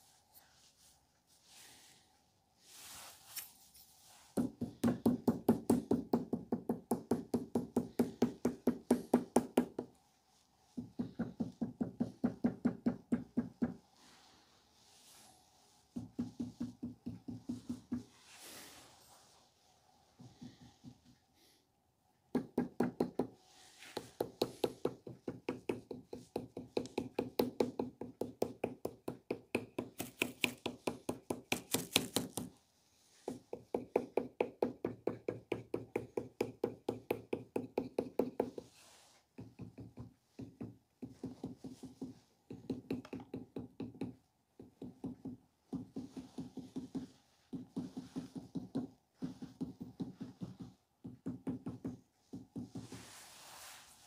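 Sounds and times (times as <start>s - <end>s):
wooden tool tapping on clay: 4.4s - 10.0s, 10.8s - 13.8s, 15.9s - 18.1s, 22.3s - 32.5s, 33.3s - 38.7s, 39.3s - 52.9s.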